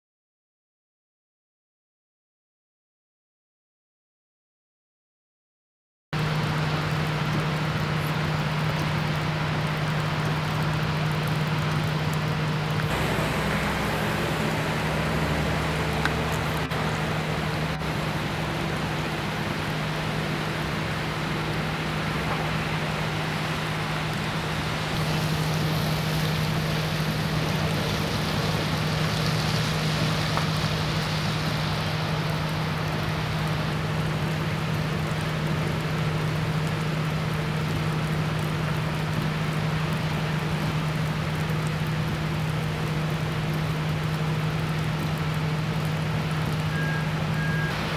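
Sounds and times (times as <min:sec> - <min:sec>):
fire engines droning: 0:06.2 - 0:47.9
steady hiss: 0:12.8 - 0:47.9.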